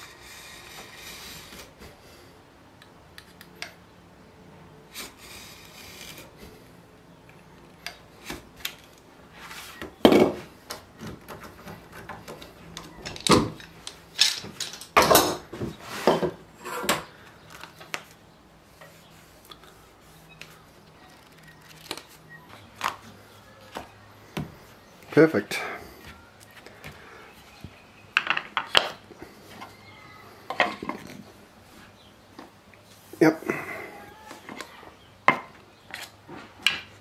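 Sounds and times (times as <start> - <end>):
knocks and scrapes: 9.4 - 17.1.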